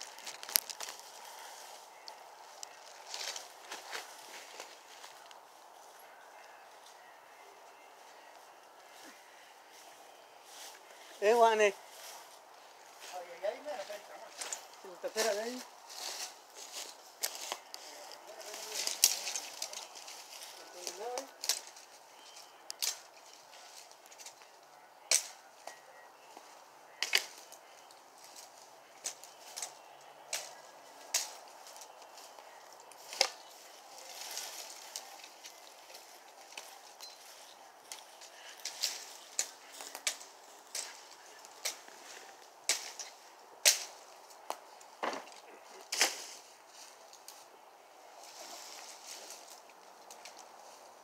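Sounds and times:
machete chopping branches: 25.1 - 25.4, 27.0 - 27.5, 32.9 - 33.4, 42.6 - 46.4.

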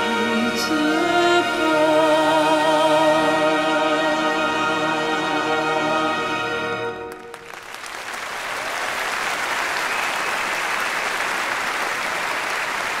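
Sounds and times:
audience applause: 7.1 - 13.0.

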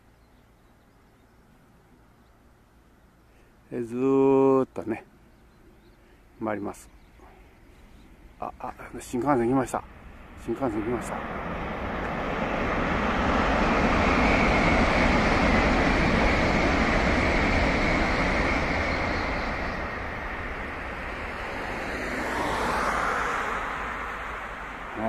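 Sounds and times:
train passing at speed: 6.6 - 25.0
car passing on road: 9.8 - 25.0.

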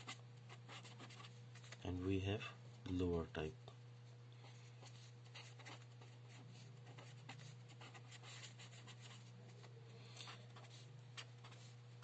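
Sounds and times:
marker pen scratching: 0.0 - 1.8, 4.5 - 9.3, 10.5 - 11.8
low electrical hum: 0.0 - 12.0.

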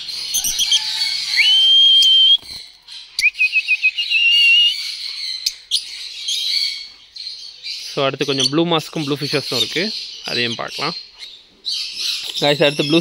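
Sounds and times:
lovebirds chirping shrilly: 0.0 - 13.0
high whistled notes: 1.3 - 2.5, 3.2 - 4.8.

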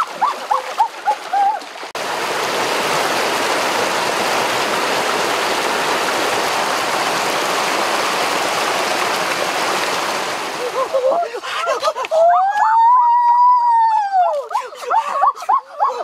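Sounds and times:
rushing stream: 0.0 - 12.7
heavy rain on rocks: 2.0 - 11.2.

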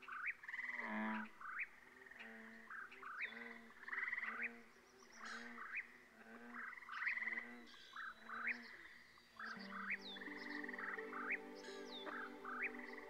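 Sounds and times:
frogs croaking: 0.0 - 13.0
soft held music chord: 9.5 - 13.0.

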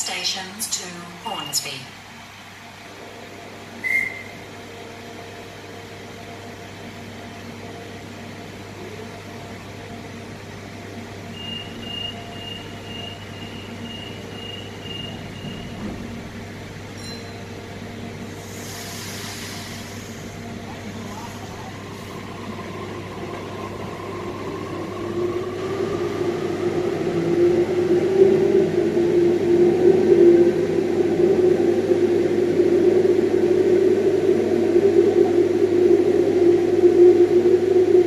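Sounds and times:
electric train humming: 0.0 - 38.0
hiss: 18.3 - 20.4.

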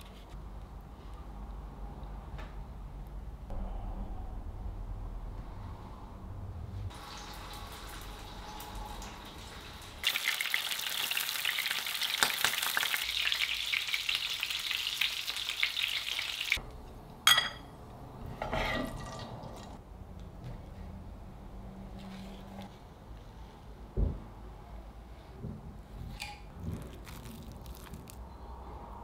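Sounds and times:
pastry frying in oil: 6.9 - 16.6, 26.5 - 28.2.

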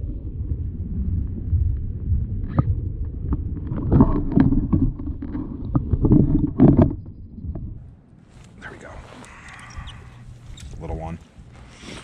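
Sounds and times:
muffled underwater rumble: 0.0 - 8.1, 8.8 - 11.8
knocks and thumps on camera: 2.5 - 7.8.

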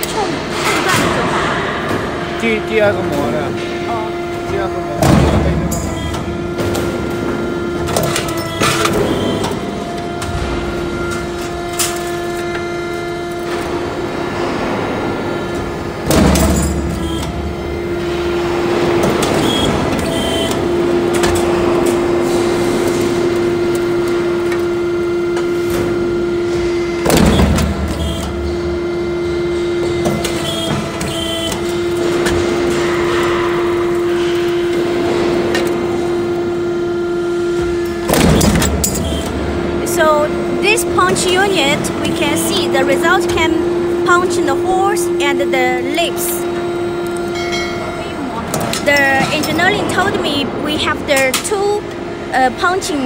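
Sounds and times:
motor hum: 0.0 - 53.0
hydraulic die thumps: 25.3 - 28.9.

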